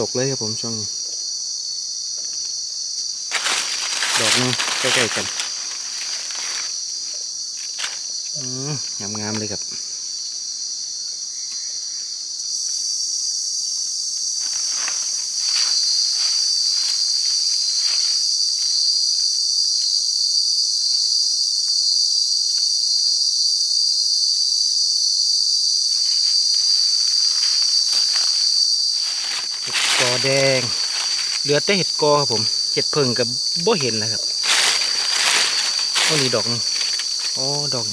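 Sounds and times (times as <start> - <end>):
shrill insect chorus: 0.0 - 37.9
rustles and crackles: 3.3 - 8.1, 14.4 - 18.8, 25.9 - 37.9.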